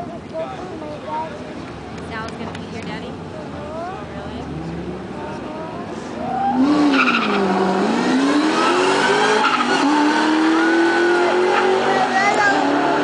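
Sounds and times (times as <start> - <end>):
cars accelerating hard: 4.2 - 13.0.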